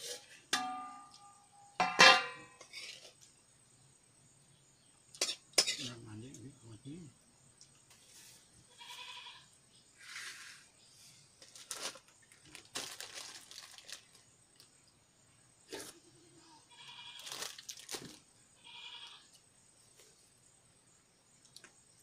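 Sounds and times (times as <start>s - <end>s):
goat bleating: 8.7s - 9.5s, 16.7s - 17.2s, 18.6s - 19.2s
crackling and rustling: 10.0s - 14.8s, 16.9s - 18.3s.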